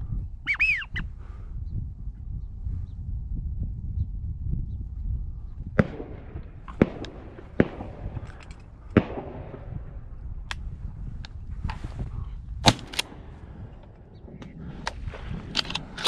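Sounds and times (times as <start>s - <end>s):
low rumble: 1.1s - 16.0s
shotgun shots with echo: 5.8s - 10.1s, 12.6s - 14.8s.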